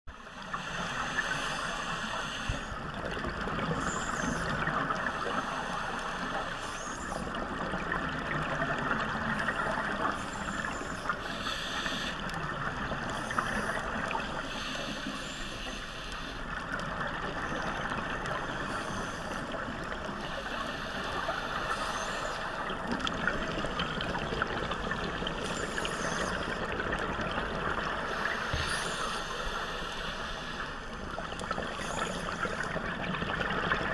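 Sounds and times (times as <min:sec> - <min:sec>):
regulator hissing breaths: 0:00.1 - 0:02.8, 0:03.8 - 0:07.3, 0:09.3 - 0:16.7, 0:18.5 - 0:22.7, 0:25.3 - 0:26.8, 0:27.9 - 0:32.8
underwater bubbling: 0:00.1 - 0:33.9.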